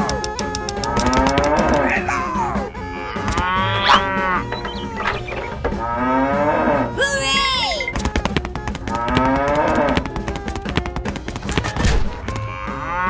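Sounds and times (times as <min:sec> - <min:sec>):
background music: 0:00.0 - 0:13.0
cattle mooing: 0:00.9 - 0:07.0, 0:08.9 - 0:10.1, 0:12.3 - 0:13.0.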